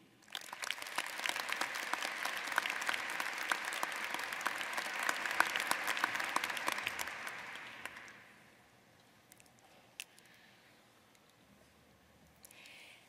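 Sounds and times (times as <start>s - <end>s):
audience applauding: 0.2s - 8.3s.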